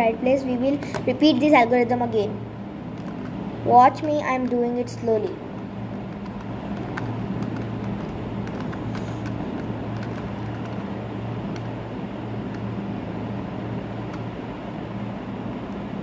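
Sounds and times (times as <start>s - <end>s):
low hum: 0.0s - 16.0s
puzzle cube layers clicking: 6.1s - 10.9s.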